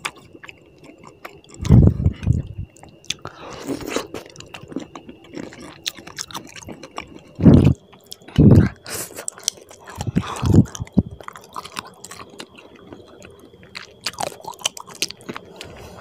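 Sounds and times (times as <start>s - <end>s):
wet chewing and lip smacking: 0.0s - 15.8s.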